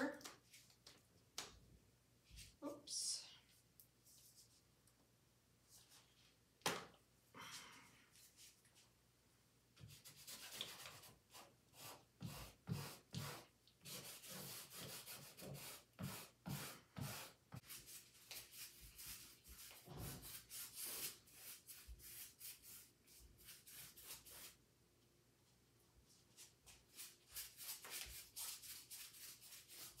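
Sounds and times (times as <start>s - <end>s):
paint marker scribbling: 9.8s - 24.6s, 26.9s - 30.0s.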